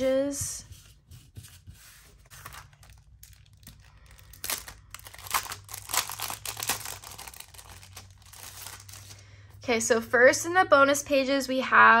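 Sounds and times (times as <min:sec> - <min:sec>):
plastic sleeve crinkling: 0:02.1 - 0:09.2.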